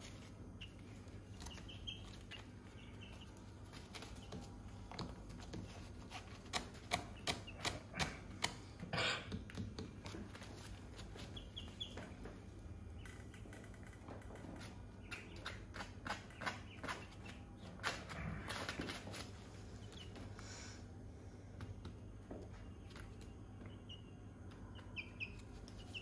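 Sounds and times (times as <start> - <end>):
faint high chick peeps: 0.5 - 4.7, 22.5 - 26.0
chickens pecking floor taps: 0.6 - 20.4, 21.6 - 26.0.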